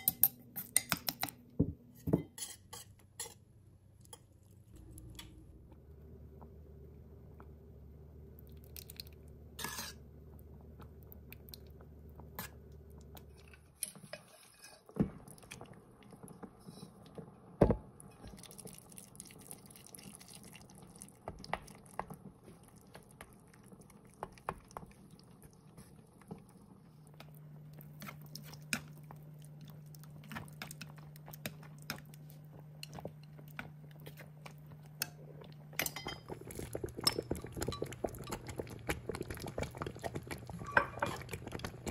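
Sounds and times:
utensils clinking against a pot: 0:00.0 - 0:01.3, 0:02.0 - 0:03.4, 0:35.8 - 0:36.4, 0:37.0 - 0:38.6, 0:40.6 - 0:41.4
faint low hum: 0:03.2 - 0:14.2.

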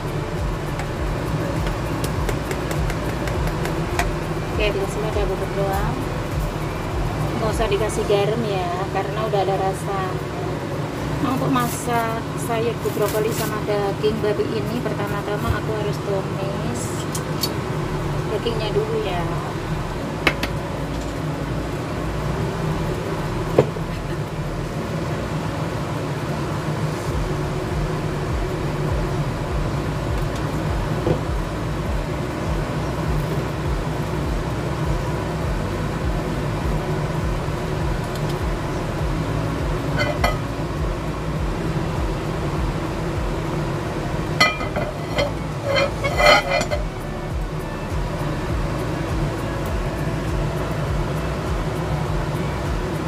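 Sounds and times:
steady low hum: 0:00.0 - 0:53.0
dishes and utensils clattering: 0:40.0 - 0:40.4, 0:44.4 - 0:46.8.

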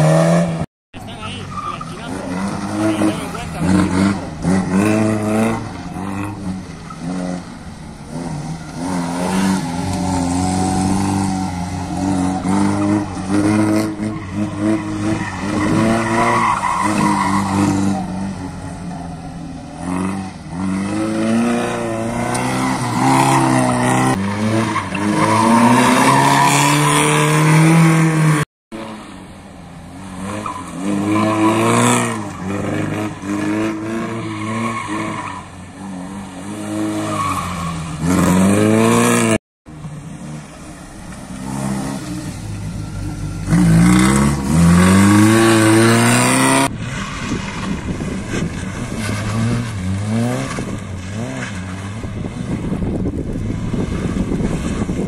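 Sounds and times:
tyres squealing on asphalt: 0:01.0 - 0:28.2, 0:29.0 - 0:52.8
car engine revving hard: 0:01.9 - 0:07.4, 0:41.4 - 0:52.8.

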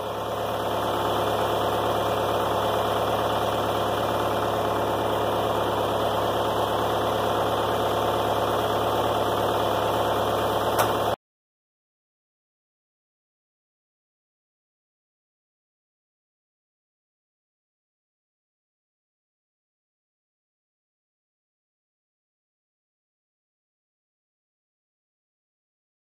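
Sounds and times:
backhoe engine idling: 0:00.0 - 0:11.2
short click: 0:10.8 - 0:11.0.

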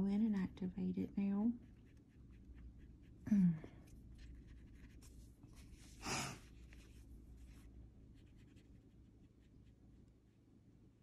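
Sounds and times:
wet brush dabbing on paper: 0:03.8 - 0:10.1.

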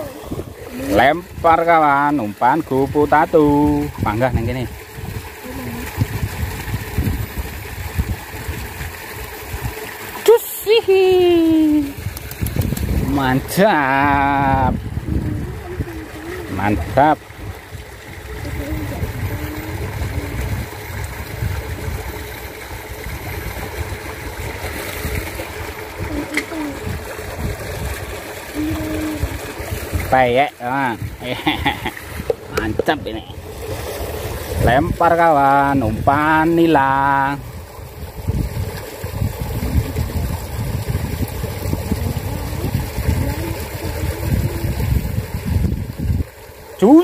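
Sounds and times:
wind buffeting the microphone: 0:00.0 - 0:01.6, 0:03.5 - 0:08.8, 0:11.5 - 0:22.2, 0:37.4 - 0:46.4
water rushing in a ditch: 0:00.0 - 0:47.0.

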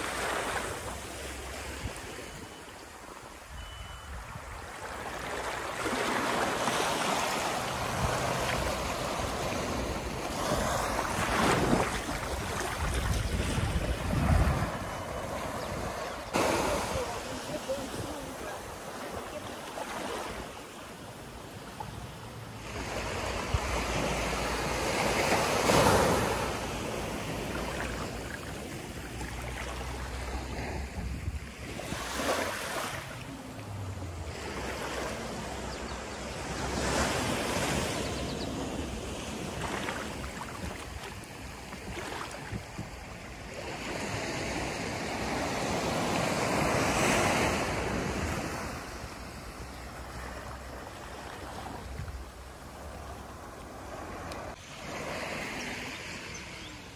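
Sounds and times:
surf washing up a sand beach: 0:00.0 - 0:02.4, 0:03.1 - 0:56.7.

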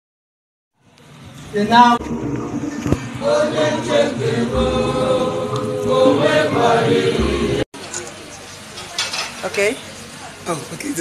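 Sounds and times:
group of voices chanting: 0:03.1 - 0:07.6.

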